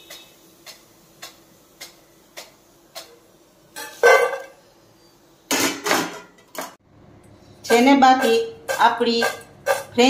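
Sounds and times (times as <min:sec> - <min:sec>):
metal spoon clattering against pan: 0:07.7 - 0:10.0.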